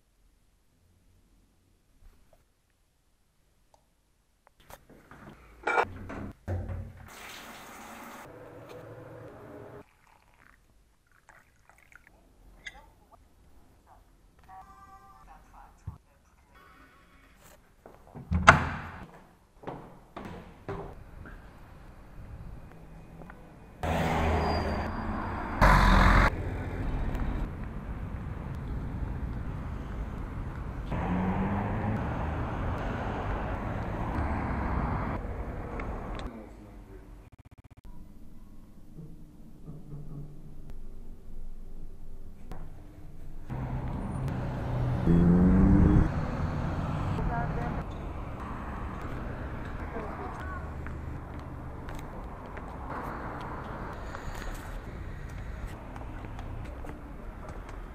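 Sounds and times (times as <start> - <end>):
passing vehicles: 8.2 - 9.8, 20.9 - 36.6, 43.5 - 57.9
water pouring into a mug: 9.8 - 12.2.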